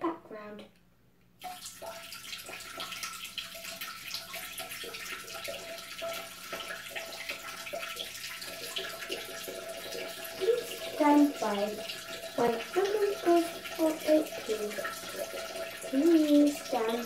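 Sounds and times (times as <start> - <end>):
person urinating into toilet bowl: 1.4 - 17.0.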